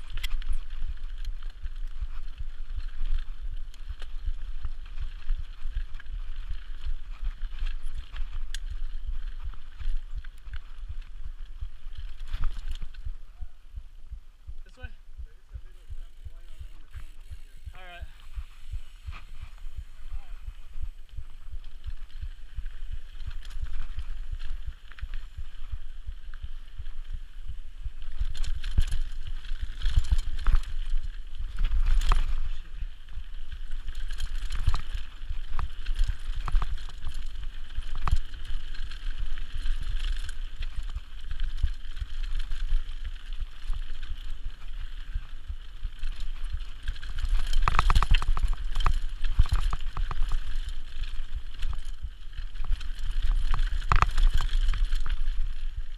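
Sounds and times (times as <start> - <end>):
bike clicks and rattles: 0.0 - 13.5, 15.6 - 55.9
wind rumbling on microphone: 0.0 - 55.9
tyres on dirt: 14.5 - 44.8.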